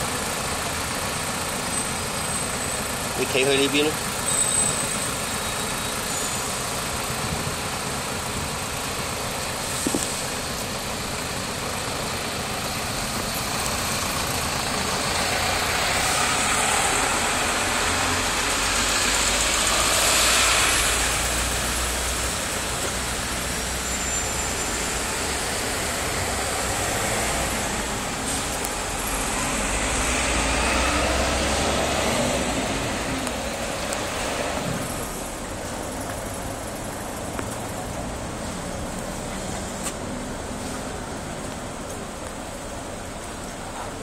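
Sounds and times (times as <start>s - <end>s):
road traffic noise: 0.0s - 44.0s
vehicle passing: 13.8s - 22.6s, 25.1s - 35.4s.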